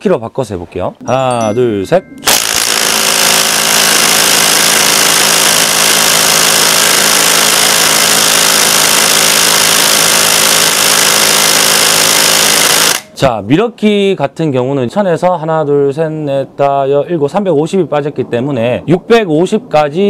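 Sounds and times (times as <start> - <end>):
impact wrench rattling: 2.2 - 13.2.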